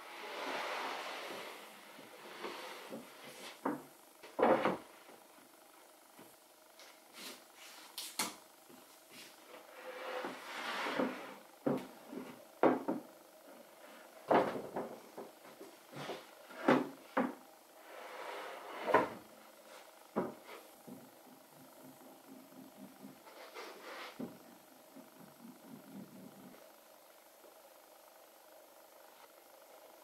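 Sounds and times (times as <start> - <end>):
wood scraping across table: 0.1 - 3.7, 9.5 - 11.4, 15.9 - 20.6, 23.2 - 24.4
wooden boards knocking: 12.6 - 13.0, 20.1 - 21.0.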